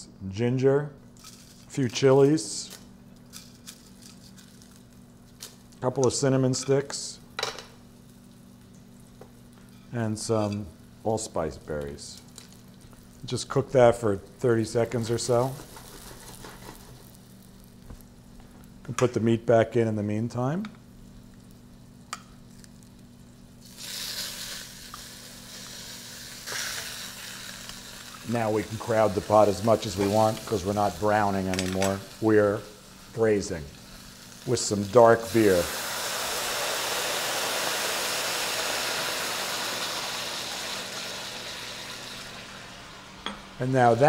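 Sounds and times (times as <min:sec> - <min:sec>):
meat sizzling in a pan: 0:14.8 - 0:18.2, 0:21.1 - 0:44.0.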